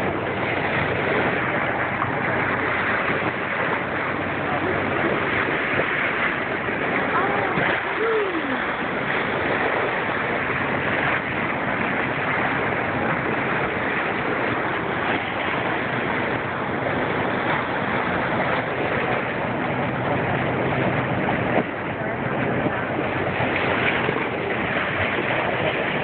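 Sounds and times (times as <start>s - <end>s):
water rushing from boat bow wave: 0.0s - 26.0s.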